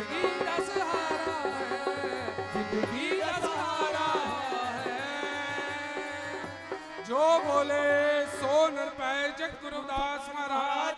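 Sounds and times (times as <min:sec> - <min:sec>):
harmonium playing chords: 0:00.0 - 0:10.6.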